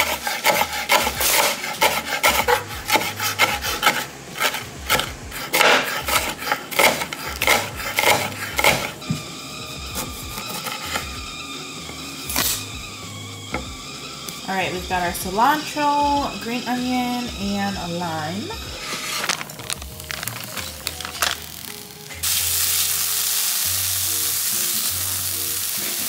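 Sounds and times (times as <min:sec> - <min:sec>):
knife chopping on a cutting board: 0:00.0 - 0:09.2.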